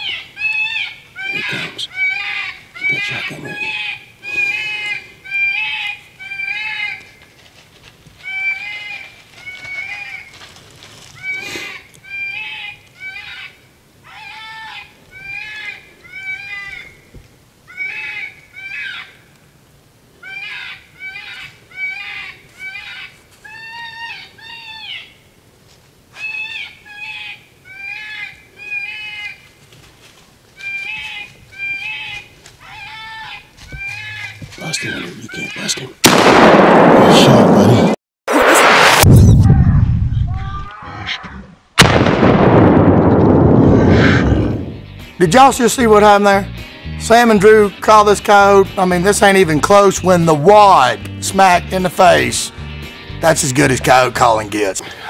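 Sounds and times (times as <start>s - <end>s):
rabbit distress call squeals: 0.0s - 7.0s, 11.2s - 16.9s, 30.6s - 35.9s.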